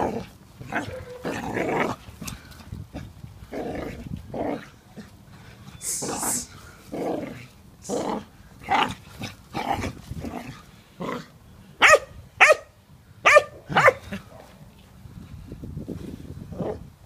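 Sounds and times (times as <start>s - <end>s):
puppy rough noises: 0.0s - 11.3s
puppy yapping barks: 0.7s - 1.4s, 11.8s - 14.5s.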